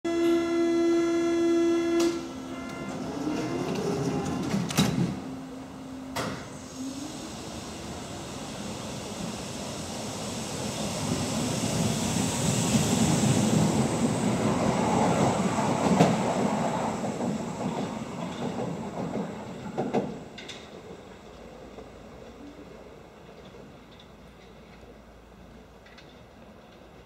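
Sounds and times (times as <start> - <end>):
train whine rising in pitch: 0.1 - 17.0
train rumbling: 0.2 - 27.0.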